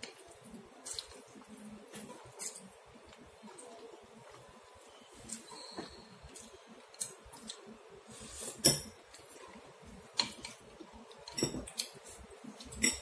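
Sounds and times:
chopsticks and spoon clinking on bowl: 12.6s - 13.0s.

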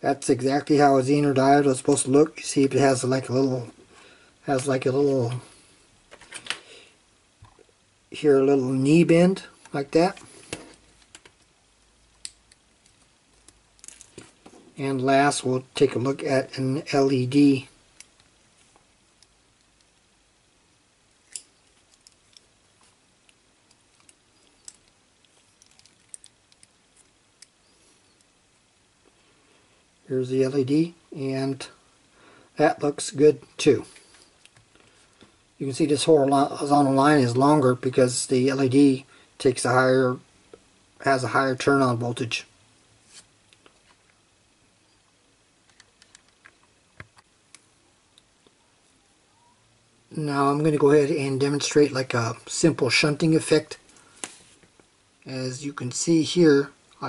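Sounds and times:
faint clicks and ticks: 9.6s - 14.2s, 21.3s - 28.4s.

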